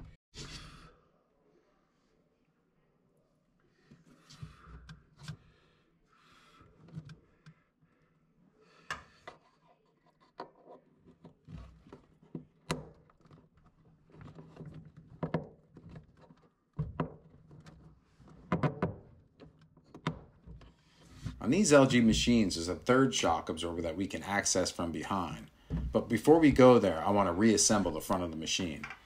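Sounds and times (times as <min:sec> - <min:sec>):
clicks knocks and scraping on plastic: 0:09.2 - 0:21.4.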